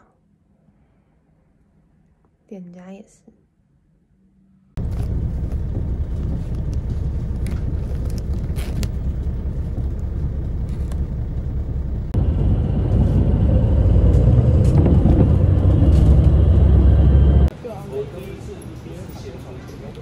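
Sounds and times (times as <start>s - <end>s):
vehicle rumble from inside cabin: 4.8s - 17.5s.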